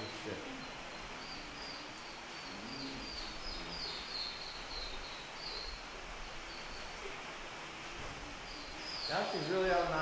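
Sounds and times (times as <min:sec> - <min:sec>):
small birds chirping: 0:00.0 - 0:10.0
steady background hiss: 0:00.0 - 0:10.0.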